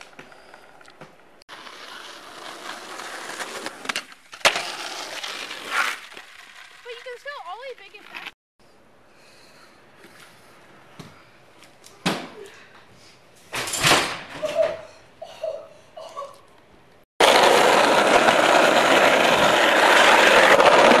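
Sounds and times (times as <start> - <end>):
skateboard wheels rolling on pavement: 0.0 - 8.4, 17.2 - 21.0.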